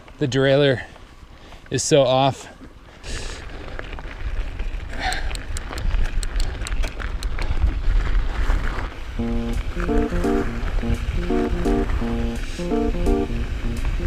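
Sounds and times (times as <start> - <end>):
wind and movement rumble: 3.5 - 9.2
background music: 9.2 - 14.0.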